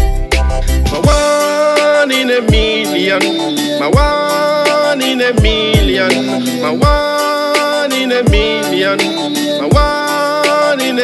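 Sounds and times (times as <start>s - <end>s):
deep kick drum beats: 0.9s - 1.6s, 2.4s - 8.7s, 9.7s - 10.0s
sustained instrumental chords: 1.0s - 10.2s.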